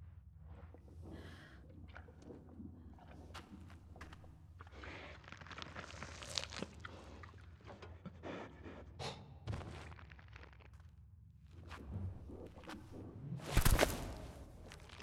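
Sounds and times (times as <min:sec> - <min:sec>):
footsteps on rock: 0:13.5 - 0:15.0.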